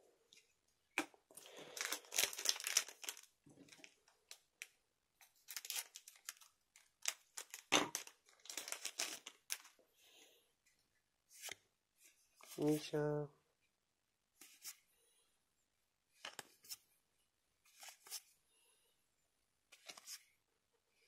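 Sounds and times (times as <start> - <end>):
foil wrapper crinkling: 1.4 - 4.4, 5.4 - 9.7.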